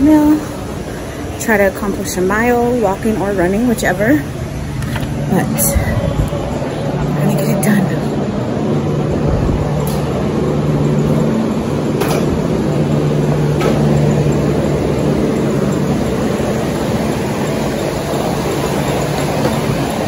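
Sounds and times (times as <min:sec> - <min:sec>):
ventilation hum: 0:00.0 - 0:20.0.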